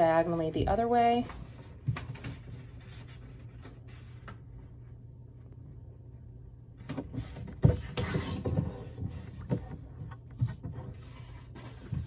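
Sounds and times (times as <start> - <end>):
paper rustling and sliding: 1.4 - 4.4, 7.1 - 12.0.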